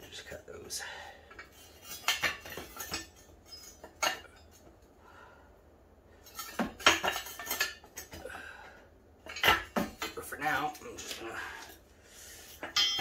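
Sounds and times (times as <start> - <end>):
steel tubing clanking: 1.3 - 4.7, 6.2 - 8.3, 9.2 - 11.8, 12.4 - 13.0.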